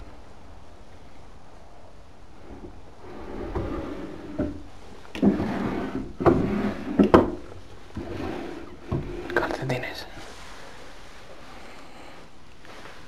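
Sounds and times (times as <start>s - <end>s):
wooden drawers sliding: 2.4s - 9.7s
drawers knocking against stops: 5.2s - 9.4s.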